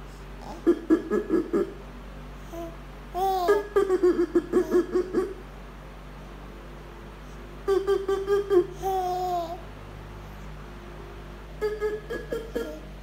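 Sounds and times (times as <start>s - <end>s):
baby giggling: 0.4s - 1.8s, 2.5s - 5.4s, 7.7s - 9.6s, 11.6s - 13.0s
baby babbling: 2.5s - 3.6s, 8.8s - 9.6s.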